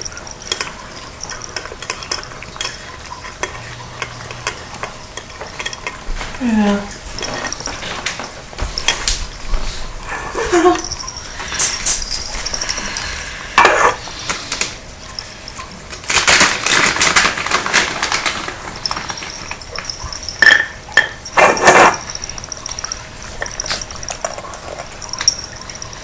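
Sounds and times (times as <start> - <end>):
cats crunching dry kibble: 0.0 - 9.5, 14.2 - 20.4, 21.2 - 26.0
food bowls clinking: 0.0 - 14.1, 15.0 - 26.0
bowl scraping: 0.0 - 15.7, 17.9 - 26.0.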